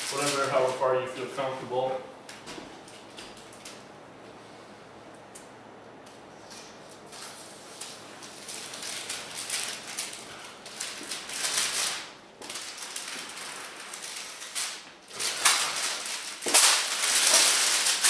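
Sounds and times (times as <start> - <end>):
plastic film rustling and crinkling: 0.0 - 1.5, 6.5 - 18.0.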